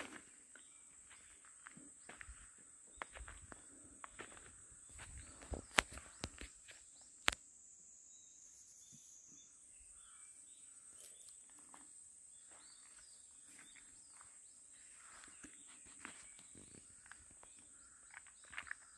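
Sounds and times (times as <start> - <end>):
footfalls on a dirt path: 0.0 - 6.8, 11.6 - 18.9
insects droning: 0.0 - 18.9.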